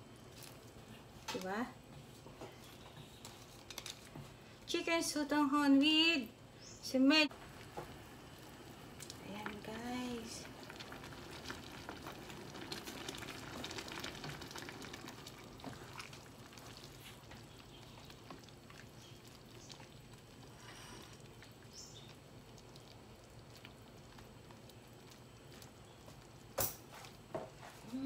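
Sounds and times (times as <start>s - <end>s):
soup simmering and bubbling: 0.0s - 1.3s, 7.3s - 27.6s
wooden spatula stirring: 9.0s - 27.9s.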